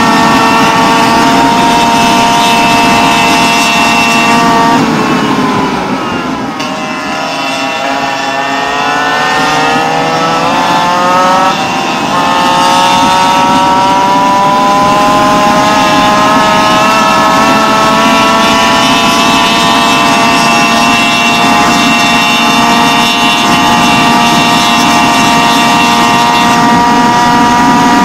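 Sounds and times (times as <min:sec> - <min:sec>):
small two-stroke engine revving: 0:00.0 - 0:28.0.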